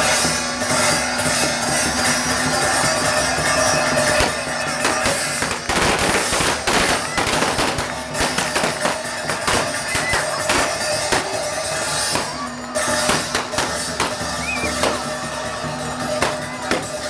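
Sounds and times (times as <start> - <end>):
music with drums: 0.0 - 17.0
party poppers popping: 4.1 - 11.5.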